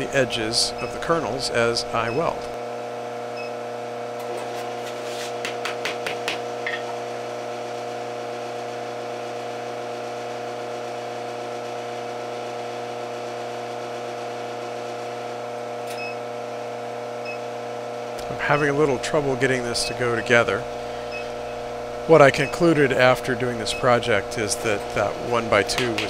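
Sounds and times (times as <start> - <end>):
induction heater humming: 0.0 - 26.0
wood knocking on hot wire: 5.4 - 6.9, 25.7 - 26.0.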